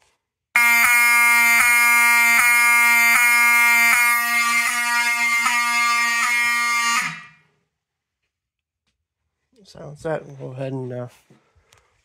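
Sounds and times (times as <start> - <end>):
fire alarm horn buzzing: 0.6 - 7.6.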